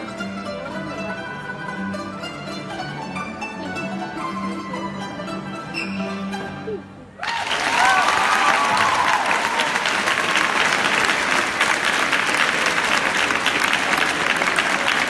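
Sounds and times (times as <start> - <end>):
music: 0.0 - 7.1
audience applauding: 7.2 - 15.0.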